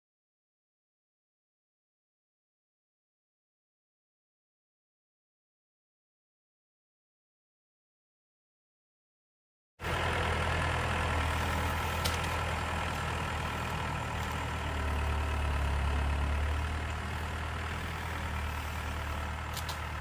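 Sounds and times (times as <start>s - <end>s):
loader engine running: 9.8s - 20.0s.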